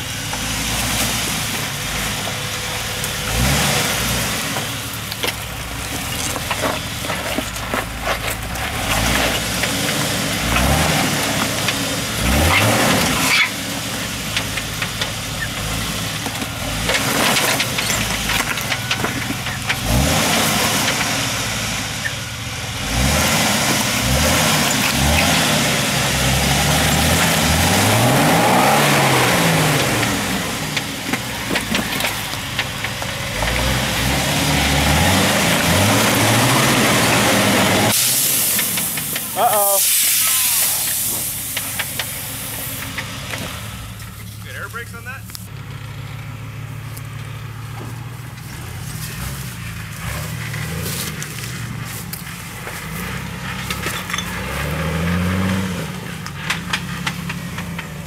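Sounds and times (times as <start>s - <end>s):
engine revving: 0.0s - 58.0s
tyres knocking and scraping on rock: 4.5s - 21.3s, 23.6s - 37.9s, 47.7s - 58.0s.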